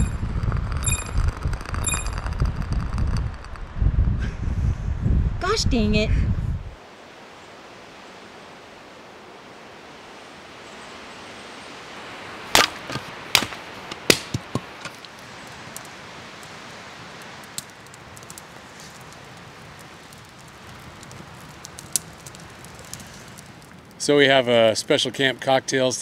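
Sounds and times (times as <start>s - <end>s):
campfire pops and crackles: 0.0s - 4.1s, 12.4s - 26.0s
fire hiss: 9.9s - 26.0s.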